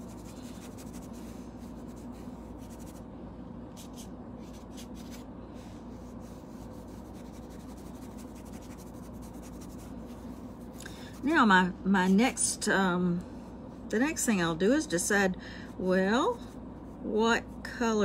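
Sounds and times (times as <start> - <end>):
paintbrush scratching on fabric: 0.0 - 3.1, 5.9 - 11.4
steady low hum: 0.0 - 18.0.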